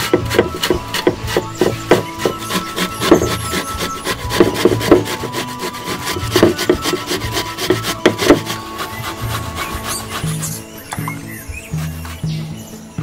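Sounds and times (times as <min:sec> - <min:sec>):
grating on metal grater: 0:00.0 - 0:10.7, 0:11.6 - 0:12.3.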